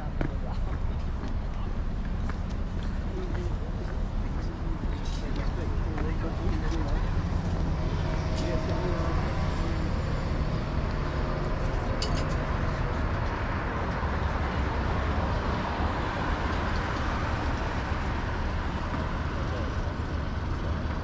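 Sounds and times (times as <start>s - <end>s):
motor vehicles rumbling: 0.0s - 21.0s.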